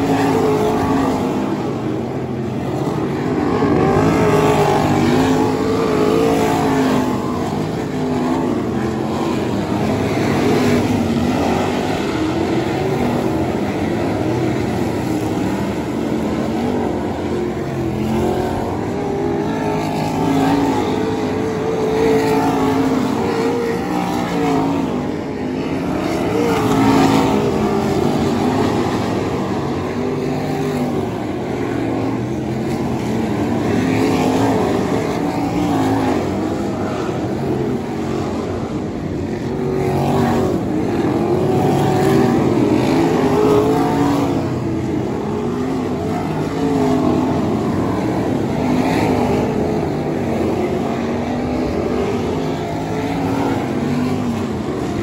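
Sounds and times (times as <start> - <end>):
racing car engines: 0.0 - 55.0.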